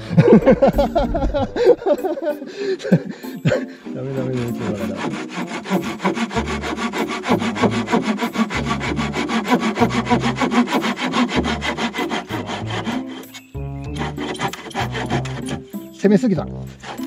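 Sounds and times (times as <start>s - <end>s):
hand saw cutting wood: 3.9s - 17.0s.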